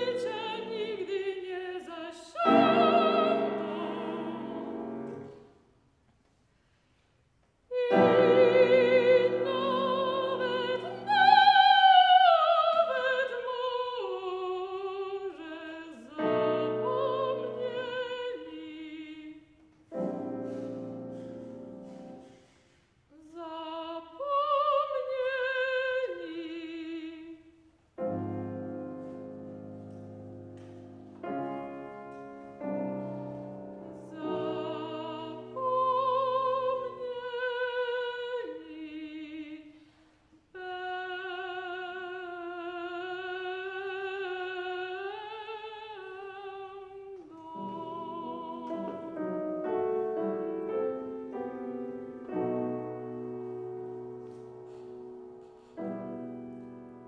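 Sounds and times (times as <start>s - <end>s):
soprano singing with vibrato: 0.0s - 5.5s, 7.7s - 22.3s, 23.1s - 28.4s, 32.7s - 52.6s
piano accompaniment: 2.3s - 5.5s, 7.7s - 14.9s, 16.1s - 19.0s, 19.8s - 22.7s, 28.0s - 38.7s, 47.2s - 57.0s.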